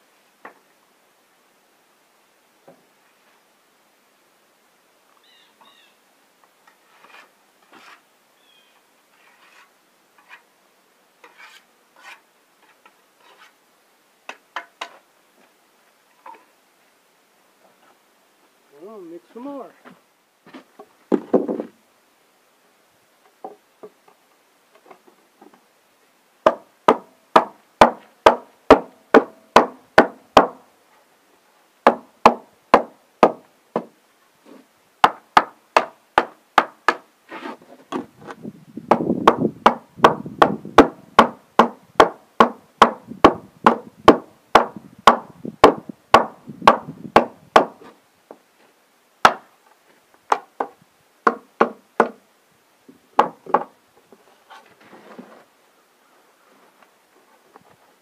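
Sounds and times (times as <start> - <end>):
hammer tapping on wooden board: 38.9 - 47.7.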